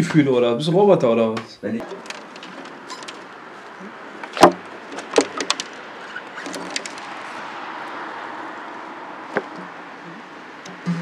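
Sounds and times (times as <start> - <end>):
car passing by: 3.3 - 11.0
sharp clicks and knocks: 4.2 - 7.1.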